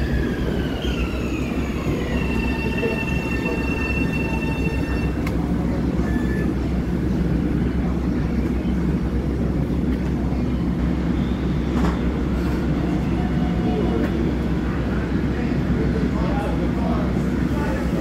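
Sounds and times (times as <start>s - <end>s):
electric train whine: 0.0s - 7.2s
low train rumble: 0.0s - 18.0s.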